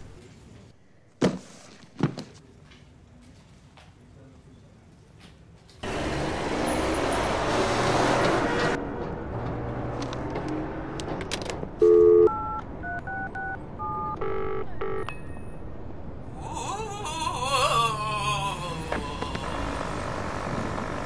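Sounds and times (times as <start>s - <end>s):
street traffic: 1.6s - 21.0s
payphone keypad beeping: 11.8s - 15.4s.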